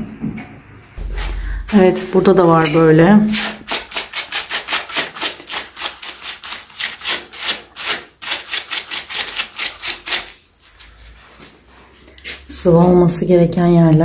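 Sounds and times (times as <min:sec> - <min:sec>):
scraping crumbling plaster: 0:01.0 - 0:12.5.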